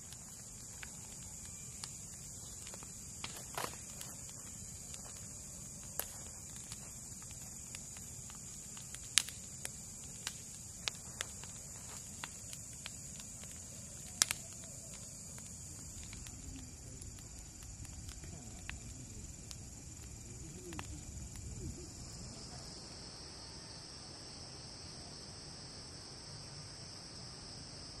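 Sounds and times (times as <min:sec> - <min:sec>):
burning wood popping: 0:00.0 - 0:22.4
bonfire crackling: 0:00.0 - 0:27.5
night insects chirring: 0:00.0 - 0:28.0.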